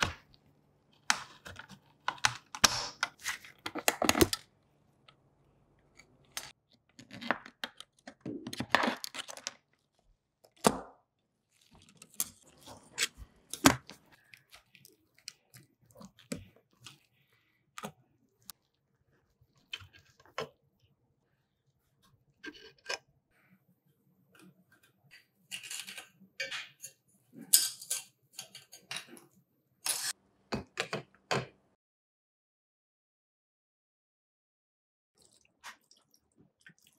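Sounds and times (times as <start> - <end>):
clicks and scrapes of small parts: 5.8 - 10.6, 24.3 - 30.2.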